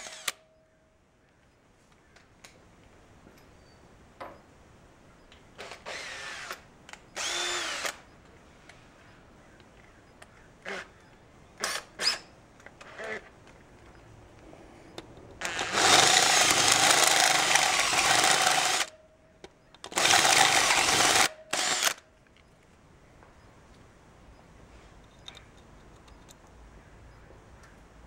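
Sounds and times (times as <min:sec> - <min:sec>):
drill cutting through metal: 0:00.0 - 0:00.4, 0:05.6 - 0:06.6, 0:07.2 - 0:08.0, 0:15.4 - 0:18.9, 0:20.0 - 0:22.0.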